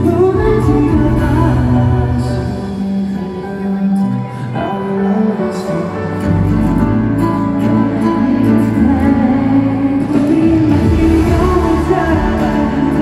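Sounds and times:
deep bass: 0.0s - 2.8s, 6.2s - 13.0s
man singing into microphone: 0.0s - 13.0s
pop backing track: 0.0s - 13.0s.

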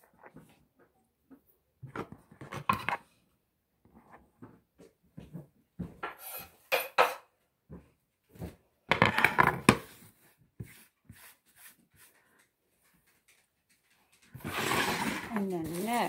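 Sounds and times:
cookware and utensils clattering: 6.0s - 7.4s
cutting board set down and slid: 14.4s - 15.4s.

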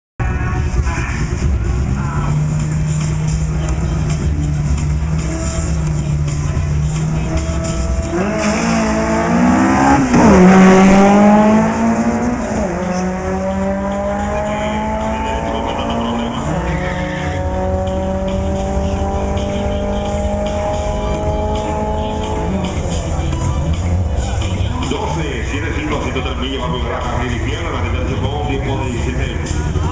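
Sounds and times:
car engine at full throttle: 0.2s - 29.9s.

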